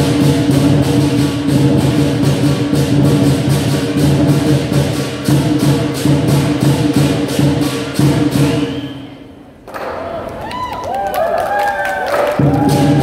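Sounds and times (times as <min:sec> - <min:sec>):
lion drum beat: 0:00.0 - 0:08.8, 0:12.1 - 0:13.0
cymbal crashes: 0:00.0 - 0:09.2.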